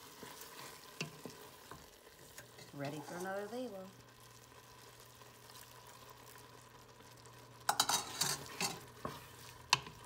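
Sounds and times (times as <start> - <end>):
wooden spoon scraping a pot: 0.0 - 3.5, 7.7 - 10.0
rice simmering in a pot: 0.0 - 10.0.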